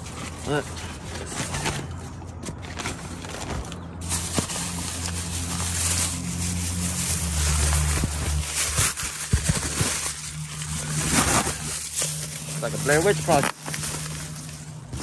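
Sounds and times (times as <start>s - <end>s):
car engine humming: 3.8s - 15.0s.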